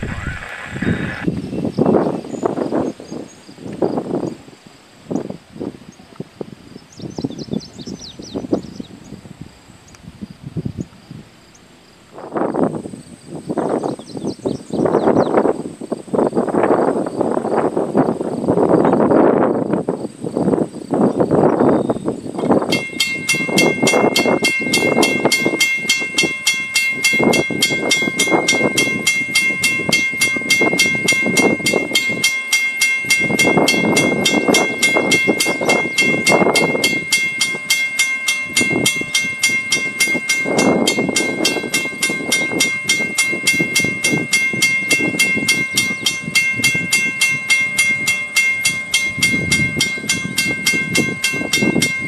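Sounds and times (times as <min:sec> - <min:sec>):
rushing noise: 0:00.0 - 0:01.4
mechanical crossing bell ringing: 0:22.7 - 0:52.0.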